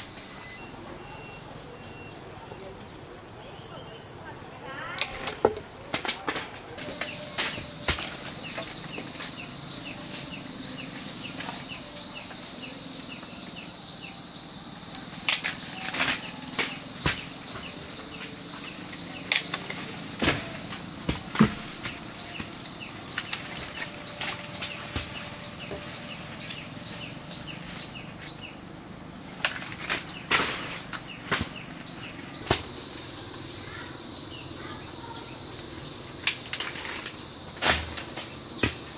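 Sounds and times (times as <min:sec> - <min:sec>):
high insect drone: 0:00.0 - 0:38.9
repeated chirping call: 0:06.8 - 0:28.6.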